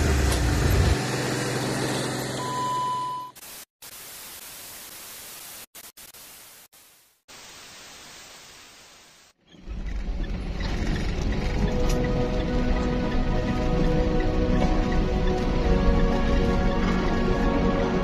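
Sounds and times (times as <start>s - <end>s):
test-tone beep: 2.4s - 3.4s
tv static hiss: 3.4s - 9.4s
background music: 11.6s - 18.0s.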